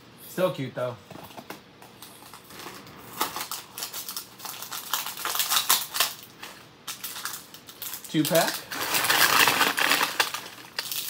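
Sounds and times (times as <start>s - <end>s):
plastic wrapper tearing and crinkling: 2.2s - 11.0s.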